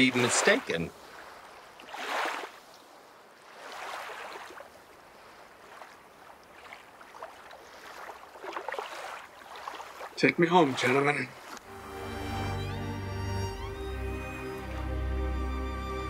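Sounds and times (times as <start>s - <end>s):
ocean surf washing on beach: 0.0s - 11.8s.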